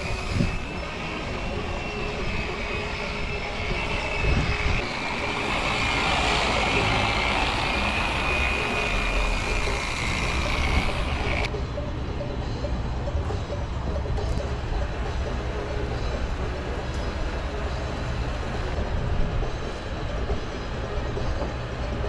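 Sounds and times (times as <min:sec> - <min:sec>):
pressure washer whining: 0:00.0 - 0:11.5.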